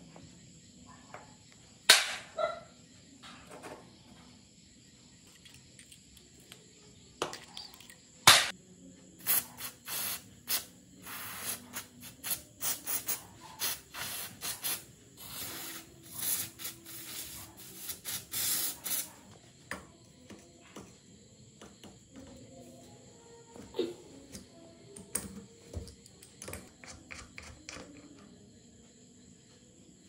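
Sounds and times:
aerosol spray hissing: 0:09.2 - 0:19.3.

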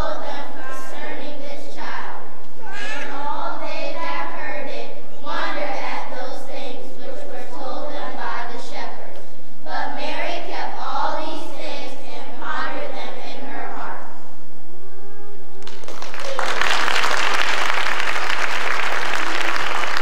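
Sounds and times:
children's choir singing: 0:00.0 - 0:14.2.

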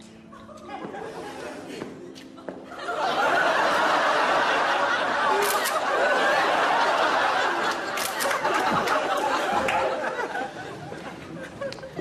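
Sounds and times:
audience laughter: 0:00.4 - 0:12.0
phone camera shutter clicks: 0:05.4 - 0:05.8, 0:08.0 - 0:08.4.

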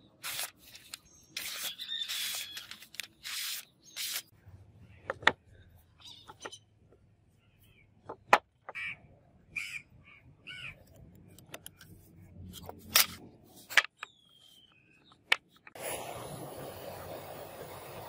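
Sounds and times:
gas torch hissing: 0:15.8 - 0:18.0.

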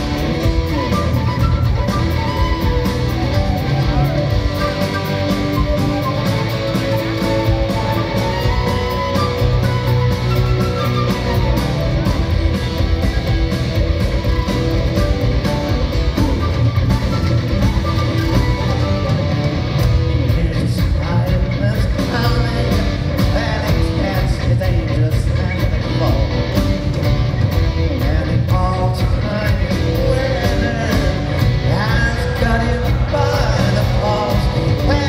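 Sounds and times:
flute lead: 0:00.0 - 0:20.0
live rock band playing: 0:00.0 - 0:35.0.

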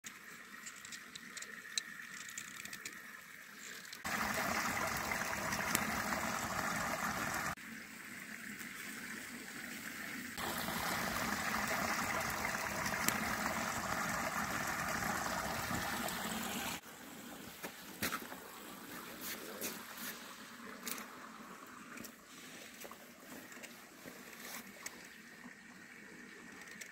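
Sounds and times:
creek water rushing over rocks: 0:04.0 - 0:07.6, 0:10.4 - 0:24.9.

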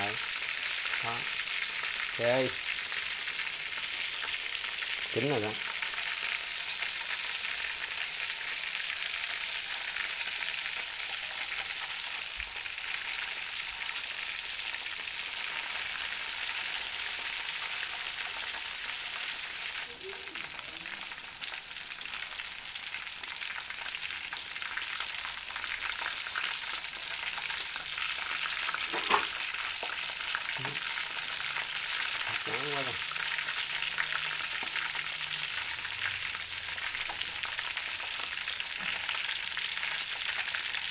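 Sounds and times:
chicken sizzling in hot oil: 0:00.0 - 0:40.9.

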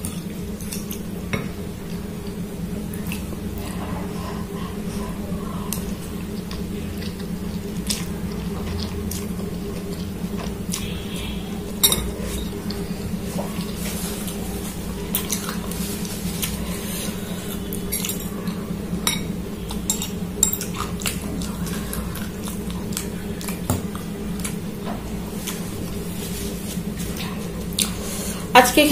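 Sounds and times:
cutlery clinking on glass bowl: 0:11.8 - 0:12.5, 0:19.9 - 0:20.8.

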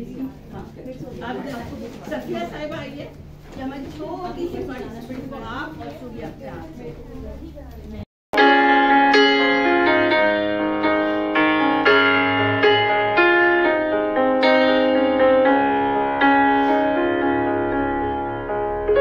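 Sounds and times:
slow piano music: 0:08.4 - 0:19.0.

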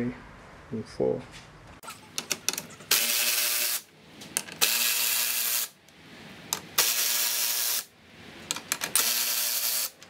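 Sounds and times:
electric ratchet whirring: 0:02.9 - 0:03.9, 0:04.6 - 0:05.8, 0:06.8 - 0:07.9, 0:08.9 - 0:10.0.

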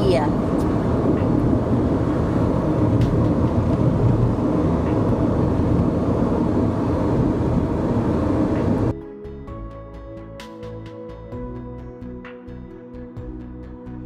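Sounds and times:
car road and engine rumble: 0:00.0 - 0:09.0.

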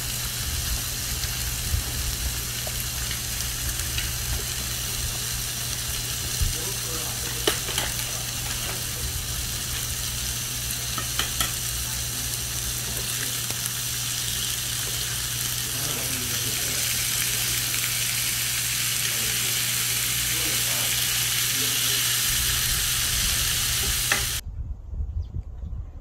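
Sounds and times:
food sizzling in frying pan: 0:00.0 - 0:24.4
utensil clicking against pan: 0:07.4 - 0:08.8, 0:10.9 - 0:11.6.

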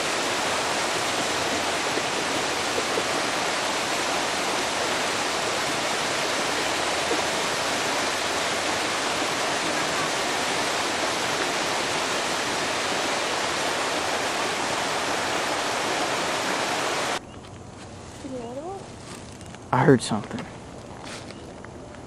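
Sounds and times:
creek water rushing over rock: 0:00.0 - 0:17.2.

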